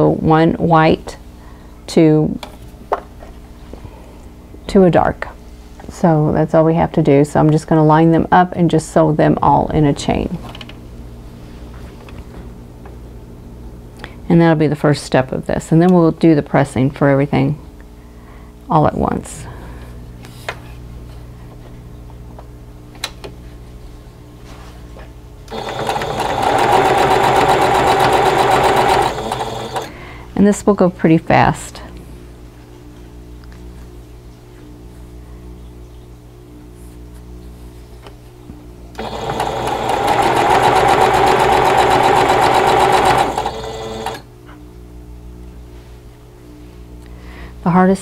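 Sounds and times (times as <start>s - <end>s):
sewing machine stitching: 25.5s - 29.9s, 39.0s - 44.2s.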